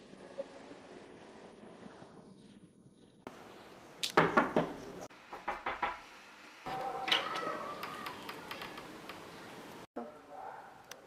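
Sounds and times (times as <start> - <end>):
knocking on wooden door: 4.2 - 6.0.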